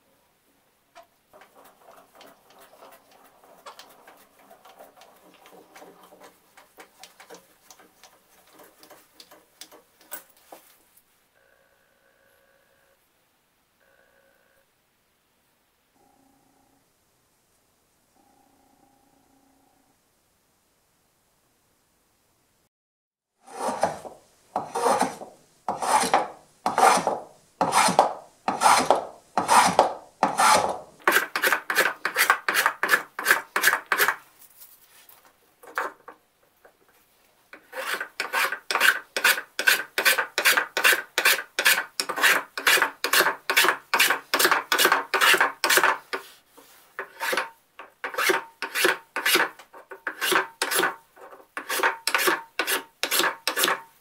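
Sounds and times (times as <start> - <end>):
hand plane scraping wood: 1.4 - 9.9, 23.4 - 34.2, 37.6 - 53.9.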